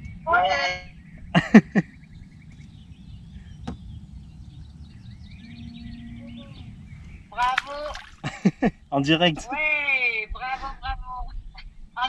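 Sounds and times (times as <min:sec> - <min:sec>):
faint bird chirps: 0:00.9 - 0:08.1.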